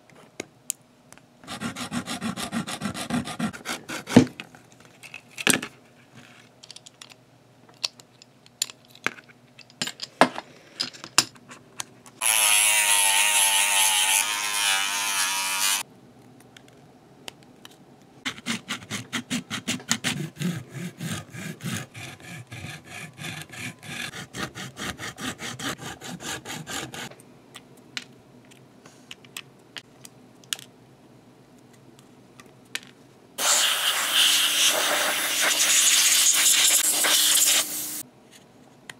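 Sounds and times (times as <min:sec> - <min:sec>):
hiss: 0:33.4 - 0:38.0.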